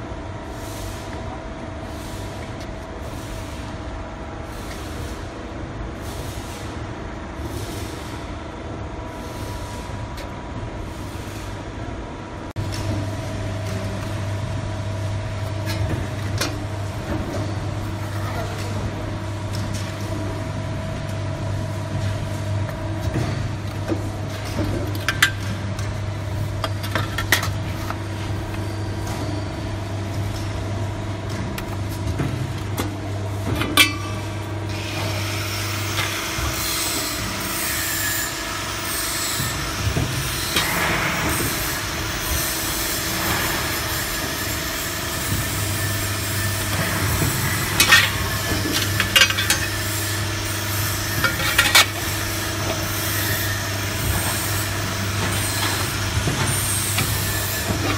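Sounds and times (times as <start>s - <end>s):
machine hum: 42.0s - 57.9s.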